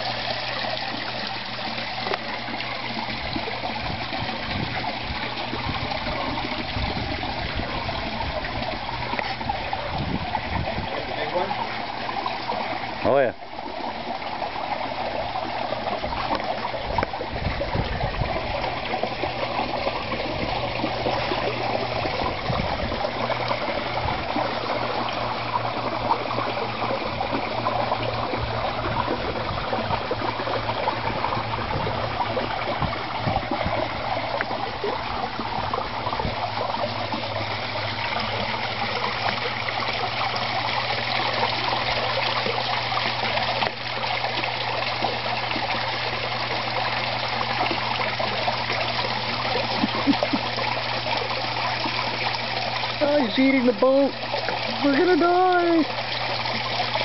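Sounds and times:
pond water splashing and trickling: 0:00.0 - 0:57.0
steady low hum: 0:00.1 - 0:53.2.

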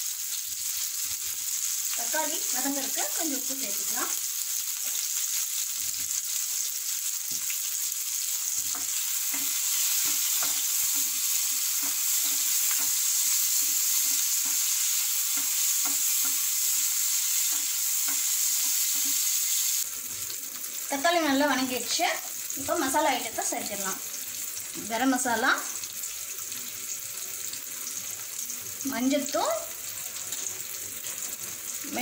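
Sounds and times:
vegetables sizzling in oil: 0:00.0 - 0:32.0
spatula scraping a pan: 0:08.5 - 0:19.4.

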